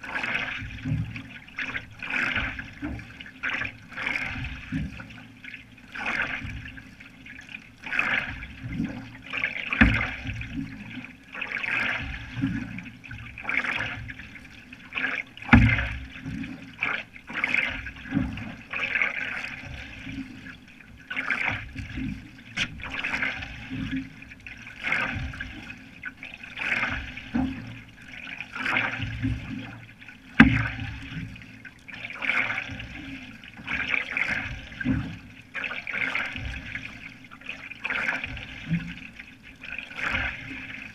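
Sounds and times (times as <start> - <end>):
paddle strokes splashing water: 0.0 - 40.9.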